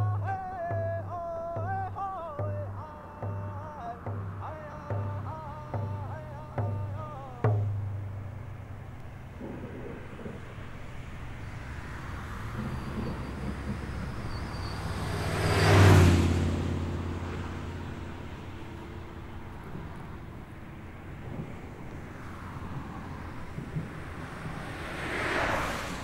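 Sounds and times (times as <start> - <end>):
drum beat: 0.0 - 8.1
highway traffic hum: 0.0 - 26.0
vehicle passing close by: 3.0 - 26.0.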